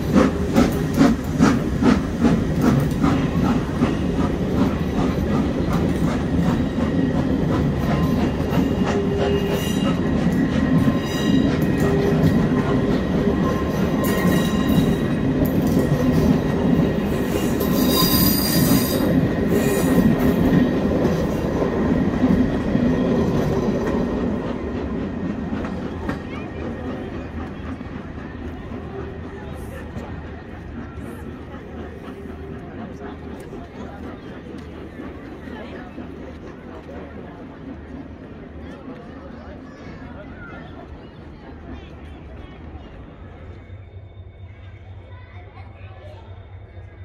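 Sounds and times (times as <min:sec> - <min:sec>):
train wheels rumbling on rails: 0:00.0 - 0:47.0
high wheel squeal: 0:17.1 - 0:20.3.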